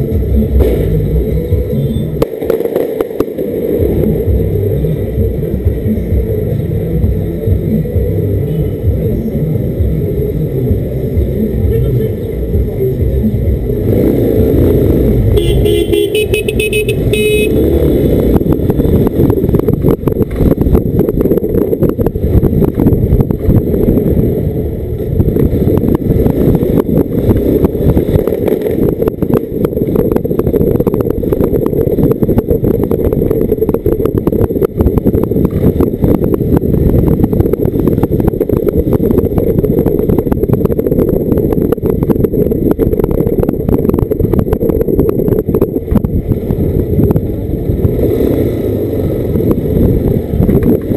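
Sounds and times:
motorcycle engine: 0.0s - 50.9s
wind rumble on microphone: 0.0s - 50.9s
vehicle horn tooting: 15.4s - 17.6s.

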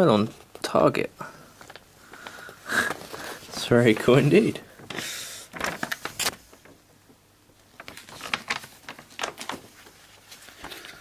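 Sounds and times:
paper sheets rustling: 1.6s - 6.8s, 7.7s - 11.0s.

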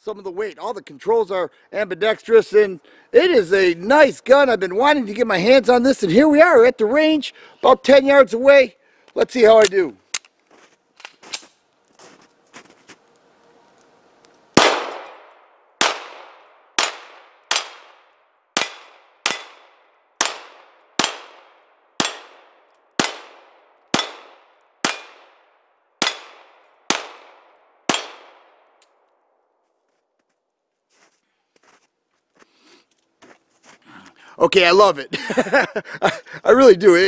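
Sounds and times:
pistol shots: 14.6s - 28.7s.

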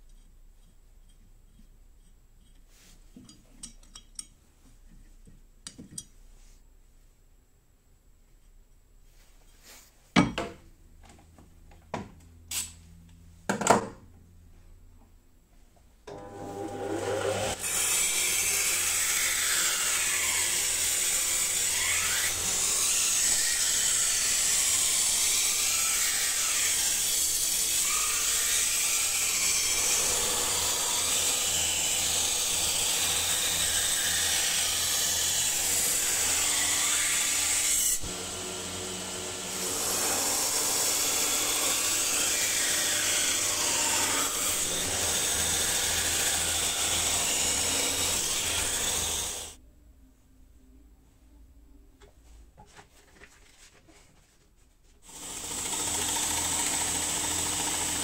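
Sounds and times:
belt grinder grinding steel: 16.1s - 49.6s, 55.1s - 58.0s.

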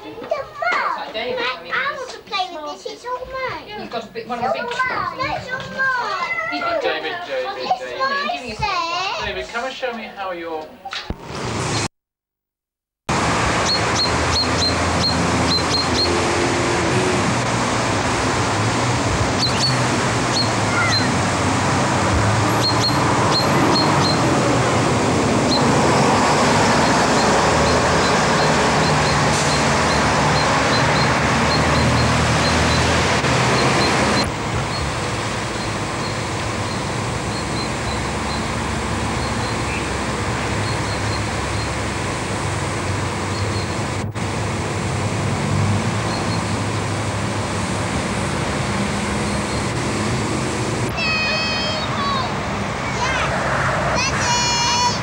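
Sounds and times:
loud rushing outdoor noise: 11.1s - 11.9s, 13.1s - 55.0s.

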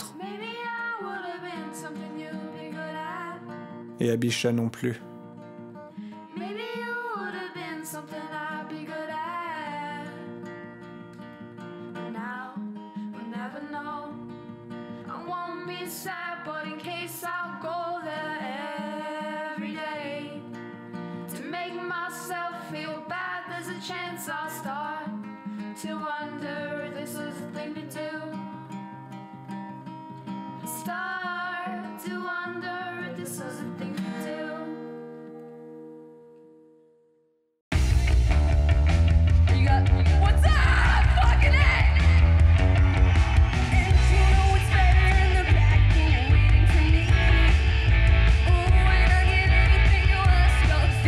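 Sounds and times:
person singing: 0.0s - 2.3s, 39.5s - 42.8s, 43.5s - 51.0s
strummed guitar: 0.0s - 37.0s, 37.7s - 51.0s.

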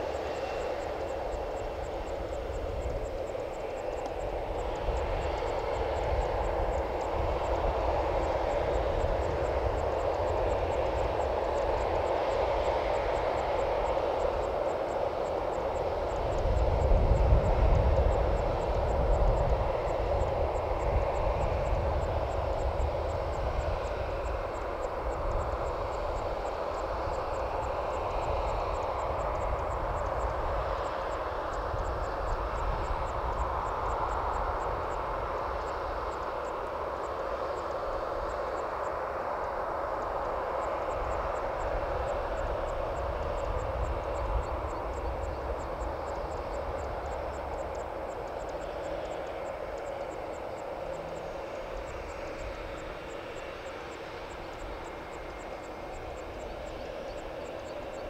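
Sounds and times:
jet turbine hum: 0.0s - 58.0s.

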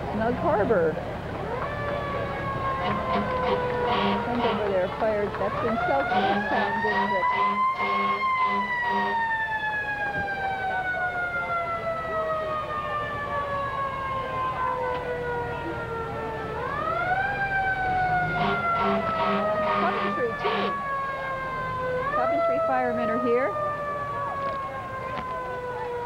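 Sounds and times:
fire engine siren: 1.1s - 26.0s
pulsing horn: 2.8s - 4.9s, 5.6s - 9.3s, 18.2s - 20.8s.

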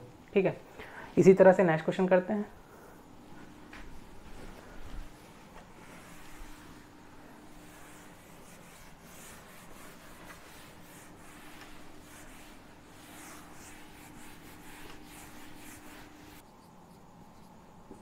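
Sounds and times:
eraser wiping a whiteboard: 5.0s - 17.6s.

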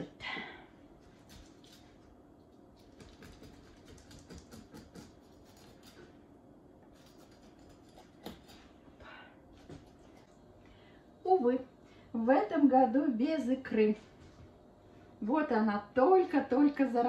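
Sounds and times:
knife scratching and clicking: 2.8s - 6.1s, 6.8s - 8.7s.

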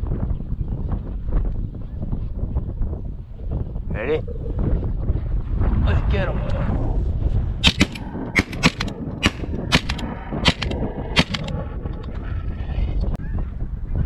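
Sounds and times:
shotgun shots: 7.6s - 11.5s.

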